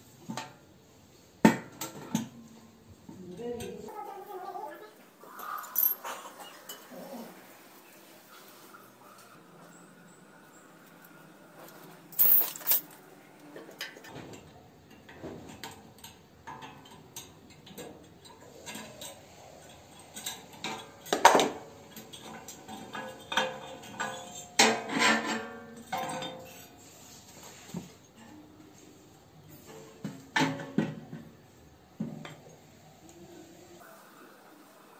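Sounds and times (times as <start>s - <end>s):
metal tools clinking and scraping: 5.2s - 7.1s, 11.6s - 13.0s, 16.5s - 27.4s.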